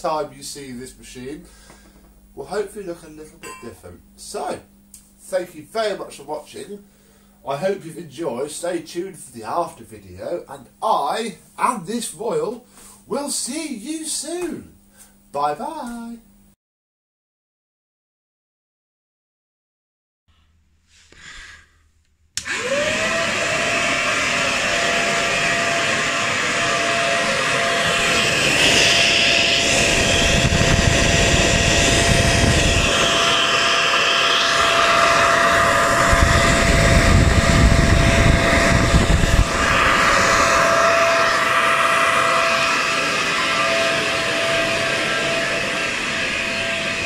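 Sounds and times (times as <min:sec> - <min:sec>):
vacuum cleaner motor whine: 0:22.4 - 0:47.0
rush of air: 0:25.4 - 0:47.0.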